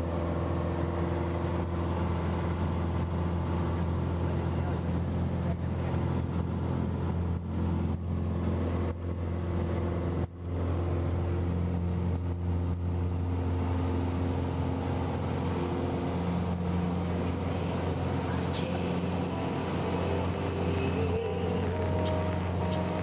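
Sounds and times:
aircraft engine and propeller: 0:00.0 - 0:23.0.

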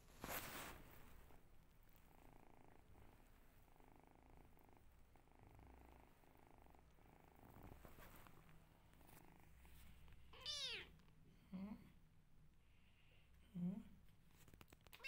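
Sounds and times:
kittens purring: 0:00.0 - 0:15.0
kitten meow: 0:10.4 - 0:10.9.

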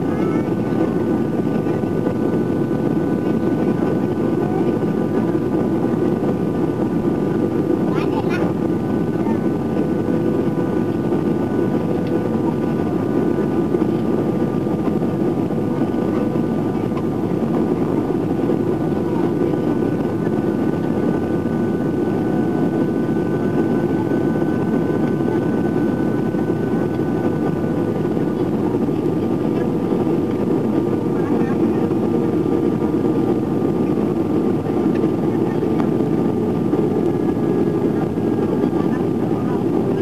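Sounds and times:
airplane cabin engine rush: 0:00.0 - 0:40.0.

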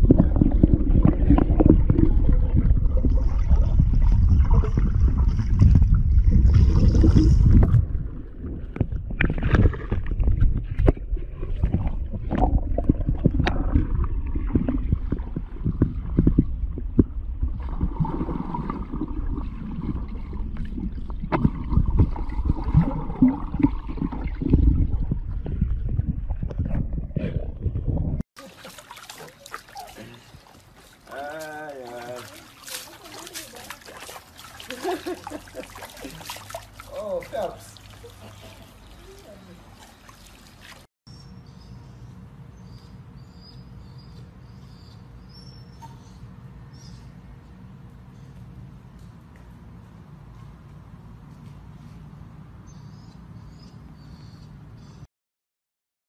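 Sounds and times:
churning water underwater: 0:00.0 - 0:40.9
water gurgling: 0:00.0 - 0:40.9.

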